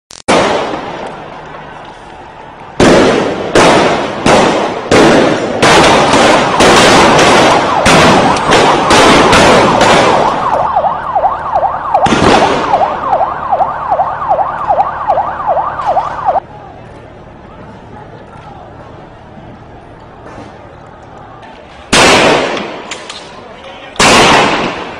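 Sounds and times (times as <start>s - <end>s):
loud ringing bangs: 2.8s - 16.4s
siren yelping: 6.4s - 16.4s.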